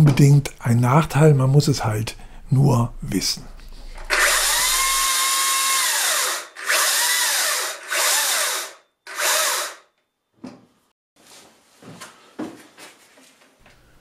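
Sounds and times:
chainsaw whirring: 0:04.0 - 0:09.9.

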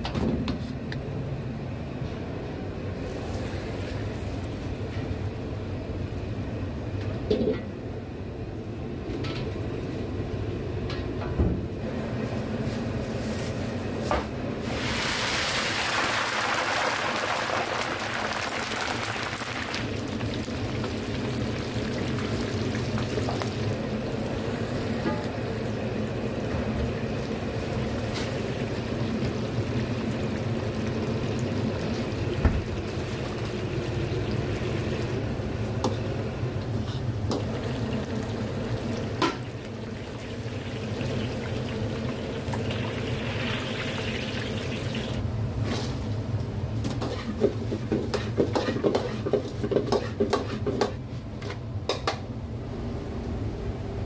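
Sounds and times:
food sizzling in wok: 0:14.6 - 0:26.2, 0:27.0 - 0:45.2.

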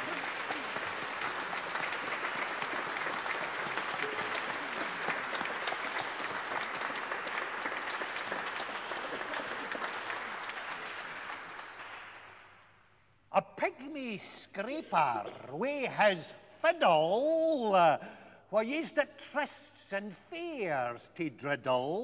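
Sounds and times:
audience applauding: 0:00.0 - 0:12.8.

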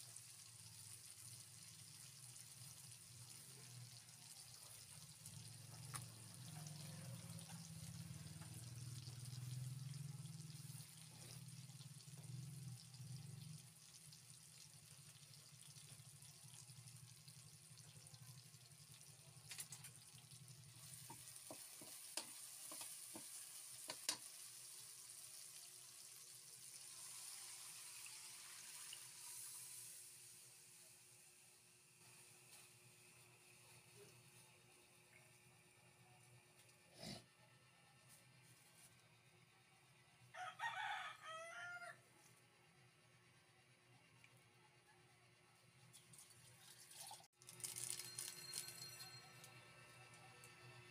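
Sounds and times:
faint food sizzling in oil: 0:00.0 - 0:36.8, 0:45.9 - 0:50.9.

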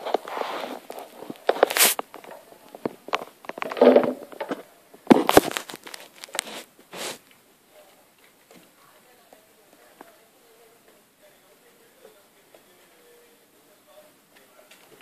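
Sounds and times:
rustling bursts: 0:00.0 - 0:02.2
kittens scrambling and scratching: 0:00.0 - 0:07.3.

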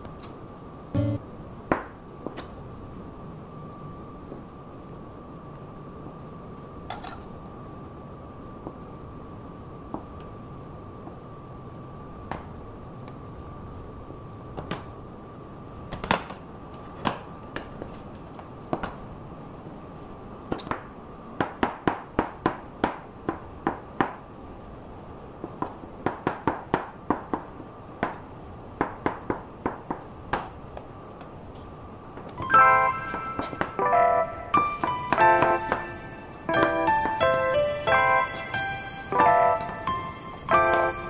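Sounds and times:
faint high tone hum: 0:00.6 - 0:01.7, 0:31.9 - 0:41.0.

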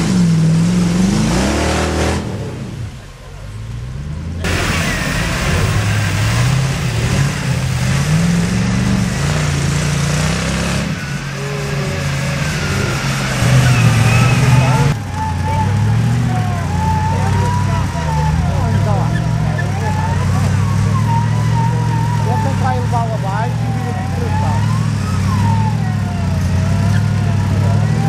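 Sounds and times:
engine revving: 0:00.0 - 0:28.0.

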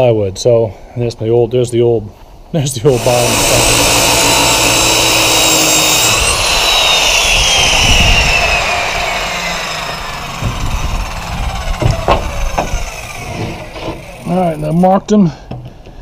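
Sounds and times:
circular saw motor winding down: 0:02.9 - 0:14.8.

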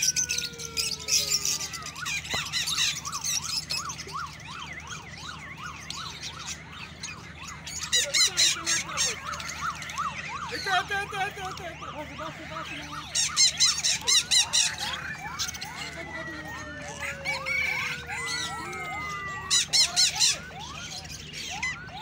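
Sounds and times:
lovebirds chirping: 0:00.0 - 0:22.0
siren yelping: 0:00.0 - 0:22.0.

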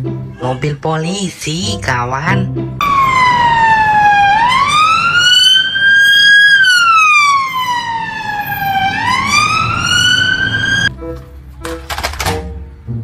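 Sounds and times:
low traffic rumble: 0:02.6 - 0:11.9
police siren wailing: 0:02.8 - 0:10.9.

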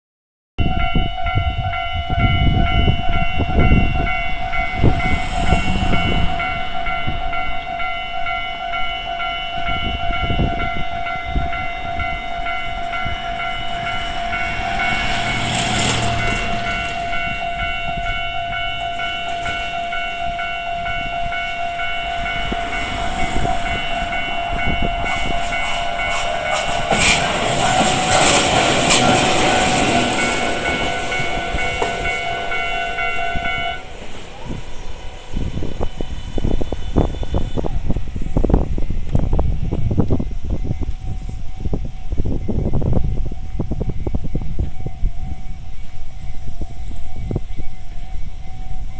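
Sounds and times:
level crossing warning bell: 0:00.6 - 0:37.6
train passing: 0:00.6 - 0:48.9.

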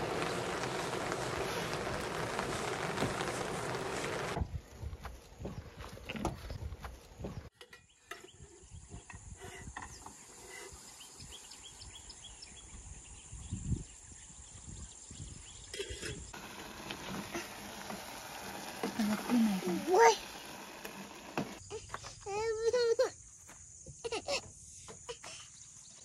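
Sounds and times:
even hiss: 0:00.0 - 0:04.4, 0:16.3 - 0:21.6
wind buffeting microphone: 0:11.2 - 0:16.3.

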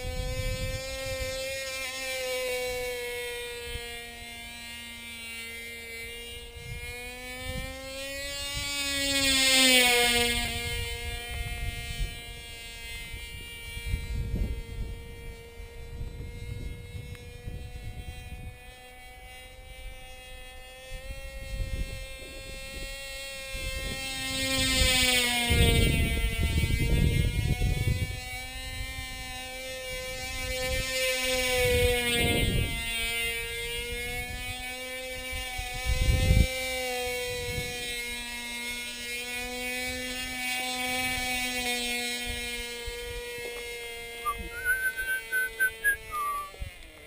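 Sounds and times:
wind buffeting microphone: 0:00.0 - 0:01.6, 0:09.9 - 0:18.8, 0:19.5 - 0:36.7
model engine buzzing at high revs: 0:00.0 - 0:47.0.

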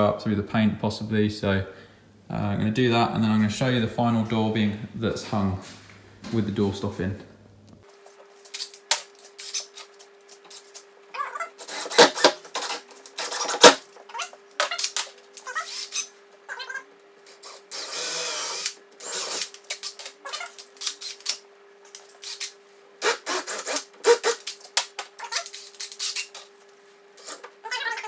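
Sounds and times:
faint steady hum: 0:00.0 - 0:28.0
cordless drill driving screws: 0:17.5 - 0:20.1.

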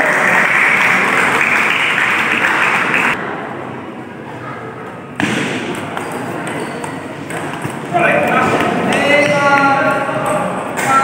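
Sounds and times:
spectators applauding: 0:00.0 - 0:03.2.

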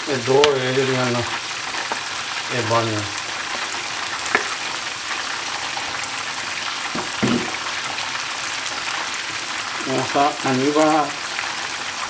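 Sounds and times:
food sizzling in a frying pan: 0:00.0 - 0:12.0
short knock: 0:07.0 - 0:07.6.

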